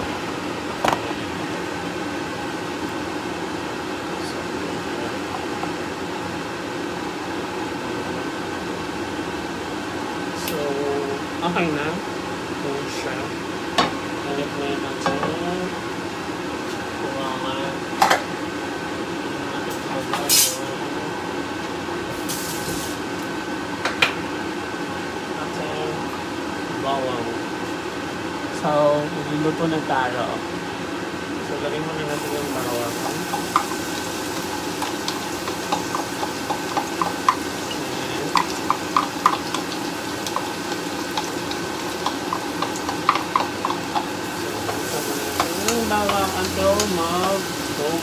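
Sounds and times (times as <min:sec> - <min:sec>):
garlic sizzling in hot oil: 0:22.1 - 0:23.2, 0:32.1 - 0:48.0
wooden spatula clicking and tapping: 0:34.8 - 0:37.4, 0:38.3 - 0:44.1, 0:45.4 - 0:47.0.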